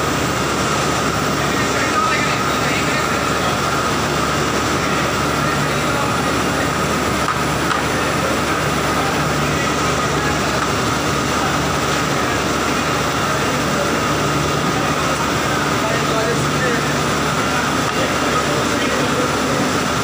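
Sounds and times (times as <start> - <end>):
conveyor machinery drone: 0.0 - 20.0
steady mechanical whine: 0.0 - 20.0.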